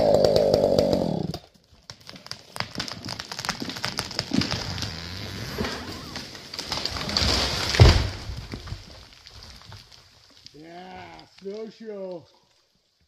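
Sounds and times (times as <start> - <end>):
wood and branches crackling: 0.0 - 13.0
tree trunk thud on ground: 2.6 - 9.8
rush through snowy trees: 4.3 - 8.1
person calling: 4.6 - 6.3.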